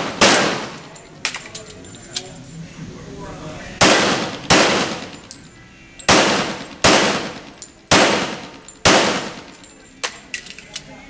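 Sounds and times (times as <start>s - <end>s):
pistol shots echoing indoors: 0.0s - 1.4s, 3.8s - 5.4s, 6.0s - 10.4s.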